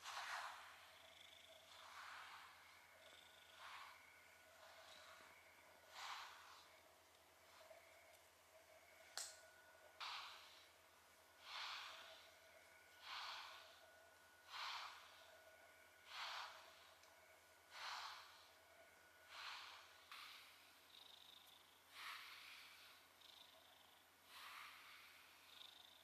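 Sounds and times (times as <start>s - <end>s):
brush strokes through fur: 0.0s - 1.0s, 1.6s - 7.8s, 10.0s - 10.8s, 11.4s - 17.1s, 17.7s - 18.6s, 19.3s - 20.7s, 21.9s - 23.0s, 24.3s - 25.3s.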